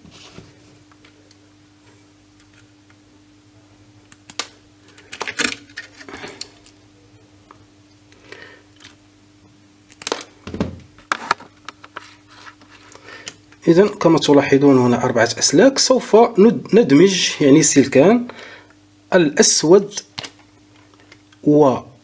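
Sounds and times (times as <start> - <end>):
clicks and rustles of handling wires: 0.0 - 3.0, 4.0 - 6.8, 7.4 - 9.0, 11.0 - 14.0, 20.0 - 21.5
faint steady hum: 0.0 - 22.0.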